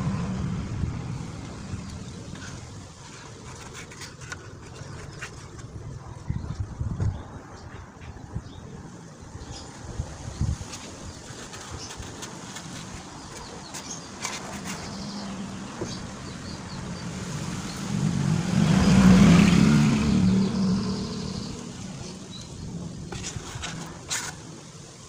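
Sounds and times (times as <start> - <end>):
vehicle engine passing by: 0.0 - 2.8, 14.6 - 22.8.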